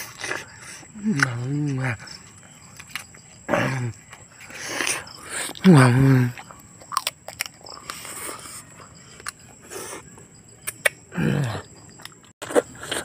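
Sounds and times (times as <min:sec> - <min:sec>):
chewing and crunching chicken: 0:00.0 - 0:10.0, 0:11.8 - 0:13.0.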